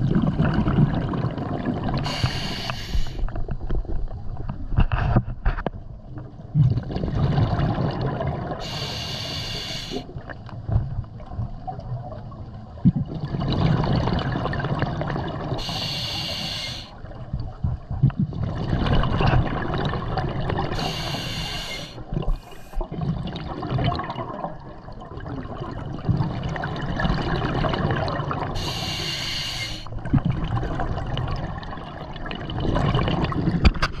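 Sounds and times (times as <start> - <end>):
bubbling exhalations: 0.0 - 3.2, 18.0 - 29.3
regulator hissing inhalations: 2.0 - 3.2, 8.6 - 10.1, 15.6 - 17.0, 20.8 - 22.8, 28.6 - 29.9.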